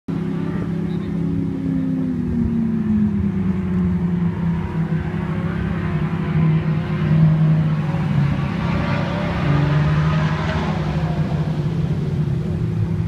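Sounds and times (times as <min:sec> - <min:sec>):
car engine idling: 0:00.1 - 0:08.6.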